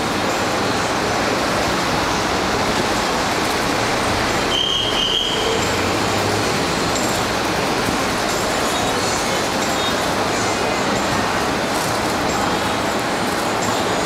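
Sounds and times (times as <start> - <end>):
passing traffic rumble: 0.0 - 14.0
short high-pitched squeal: 4.4 - 5.8.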